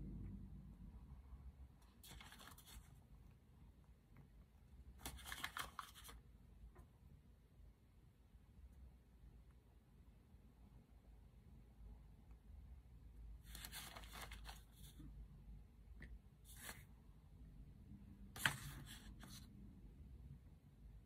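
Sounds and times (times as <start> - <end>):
paper rustling and crunching: 13.5 - 14.9.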